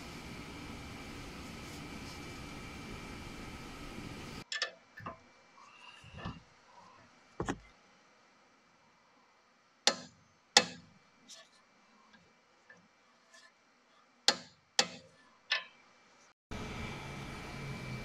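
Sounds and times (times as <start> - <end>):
steady hiss: 0.0 - 4.4.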